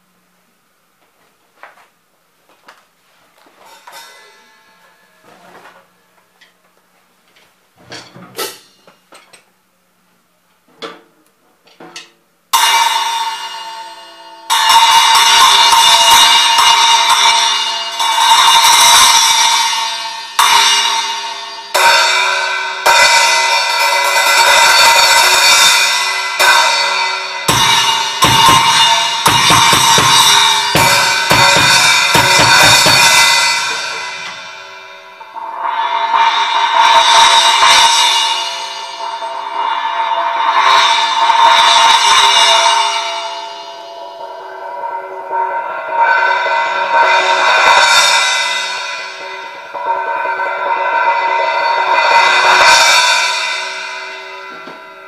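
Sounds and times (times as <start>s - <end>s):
splash cymbal crashing: 12.5s - 55.0s
bass drum: 27.5s - 34.6s.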